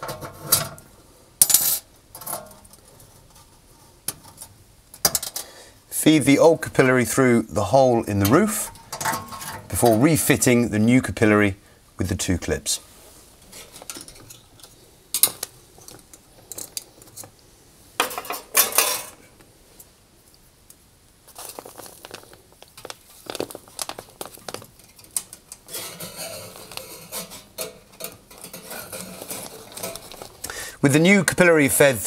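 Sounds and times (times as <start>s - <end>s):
rustling with small clicks: 19.8s - 30.5s.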